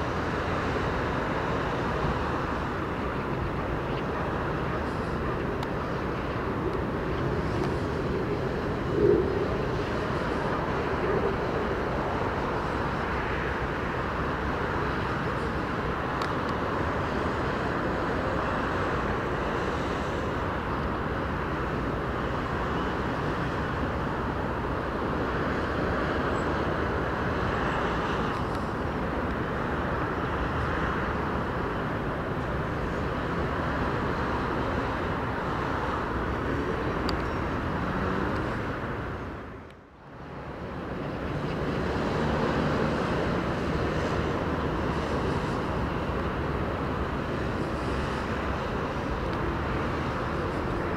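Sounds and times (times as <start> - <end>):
distant city traffic: 0.0 - 50.9.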